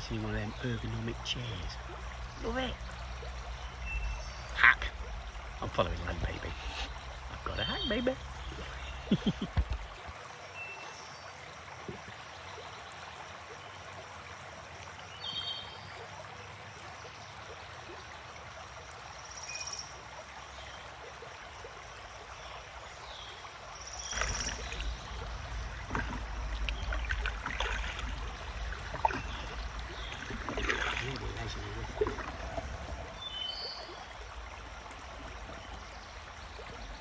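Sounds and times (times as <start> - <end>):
river water trickling: 0.0 - 37.0
paddle splashing in water: 24.0 - 37.0
low rumble on microphone: 24.1 - 37.0.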